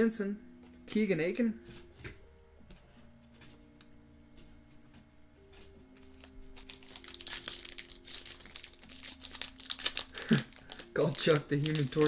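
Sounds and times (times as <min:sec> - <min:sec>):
quiet background music: 0:00.0 - 0:12.0
foil wrapper tearing and crinkling: 0:06.0 - 0:12.0.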